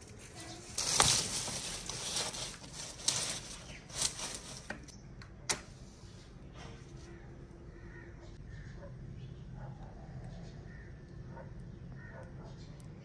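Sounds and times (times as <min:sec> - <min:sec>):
twigs and straw rustling: 0:00.0 - 0:04.9
twigs snapping: 0:00.6 - 0:04.9.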